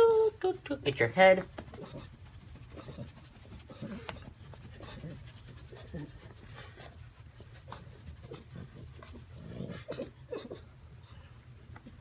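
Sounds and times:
towel rubbing dog's coat: 0:01.5 - 0:09.3
dog low vocal sounds: 0:07.7 - 0:11.2.

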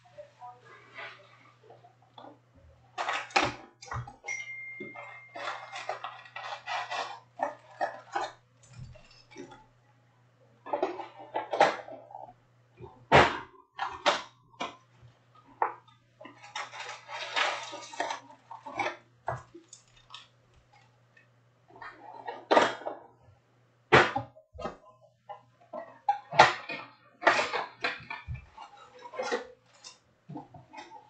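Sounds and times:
foil packs rustling and crinkling: 0:05.0 - 0:08.2, 0:16.3 - 0:20.9.

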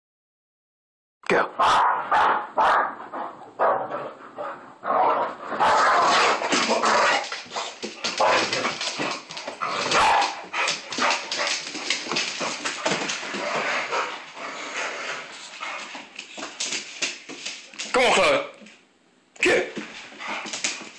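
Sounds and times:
dogs barking and yipping: 0:01.6 - 0:03.9, 0:05.5 - 0:14.4.

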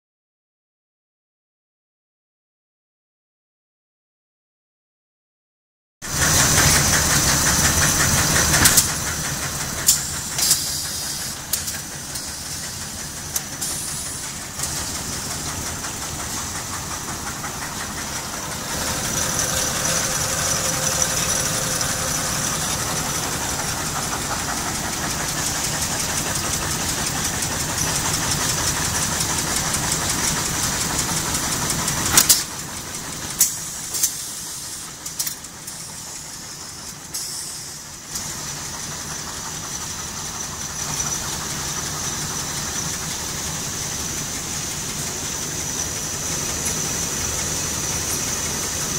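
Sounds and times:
machine clattering: 0:06.1 - 0:34.2, 0:38.1 - 0:48.9
high hiss: 0:09.9 - 0:13.0, 0:17.4 - 0:24.9.

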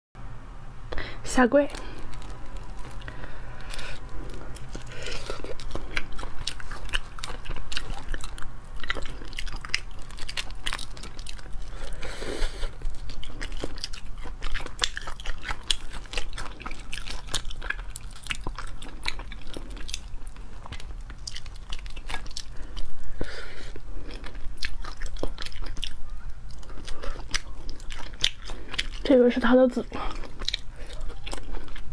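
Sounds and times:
biting and chewing: 0:01.7 - 0:31.9
crayfish shells cracking: 0:01.8 - 0:06.8.

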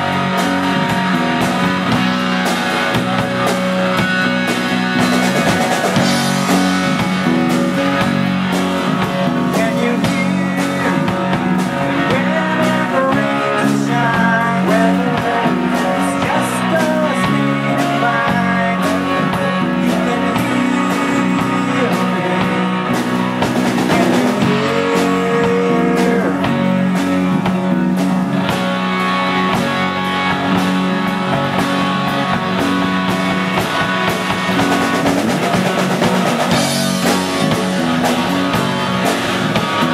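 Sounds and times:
live rock band playing: 0:00.0 - 0:39.9
person singing: 0:09.0 - 0:27.3.

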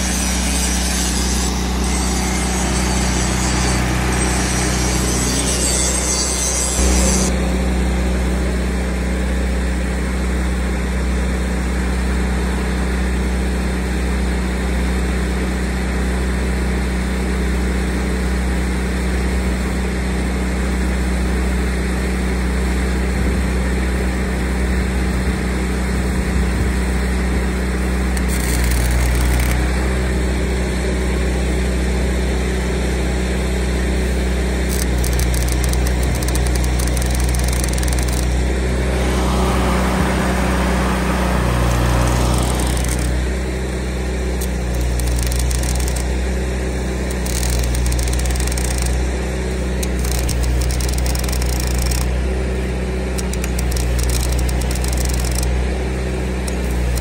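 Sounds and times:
engine running steadily: 0:00.0 - 0:57.0.

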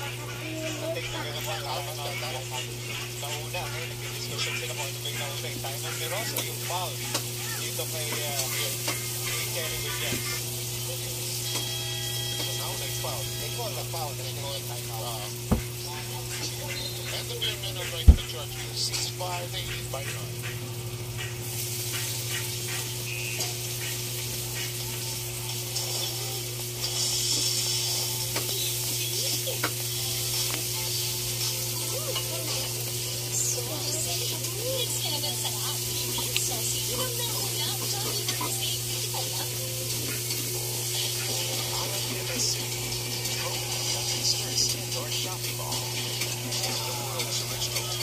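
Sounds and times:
arena crowd noise from tv: 0:00.0 - 0:11.4, 0:12.4 - 0:20.5, 0:31.7 - 0:48.0
faint voices: 0:00.0 - 0:11.4, 0:12.4 - 0:21.3, 0:31.6 - 0:48.0
electrical hum: 0:00.0 - 0:48.0.

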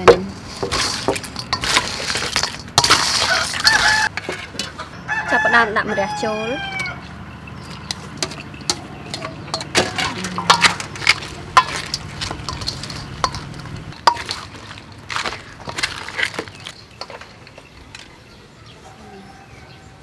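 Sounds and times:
shell and spoon clinking on metal bowl: 0:00.0 - 0:04.8, 0:07.6 - 0:18.3.

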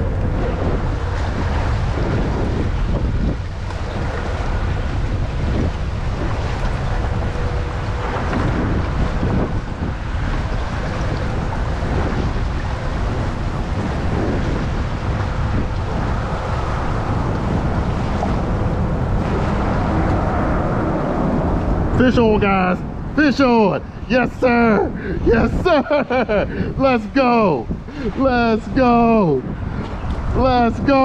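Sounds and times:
water current rushing and splashing: 0:00.0 - 0:31.0
wind buffeting microphone: 0:00.0 - 0:31.0.

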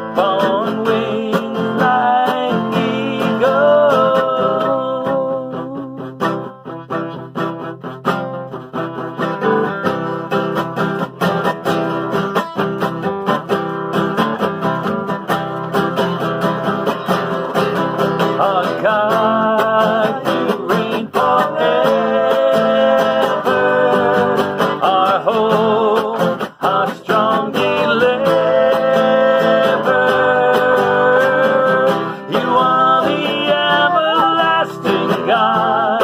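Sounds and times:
person singing: 0:00.0 - 0:07.4, 0:15.9 - 0:36.0
acoustic guitar strumming: 0:00.0 - 0:36.0.

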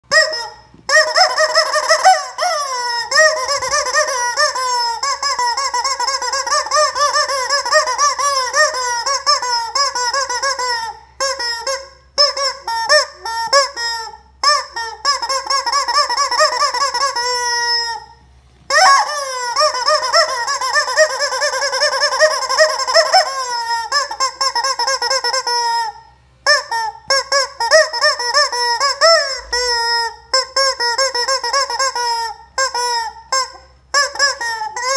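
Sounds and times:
rubber chicken toy squawking: 0:00.0 - 0:34.9.

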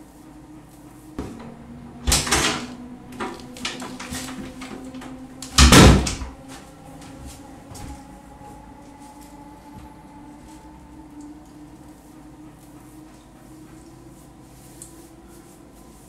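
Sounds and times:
door handle and latch clicks: 0:01.2 - 0:06.3
wooden door opening and shutting: 0:01.2 - 0:06.6.

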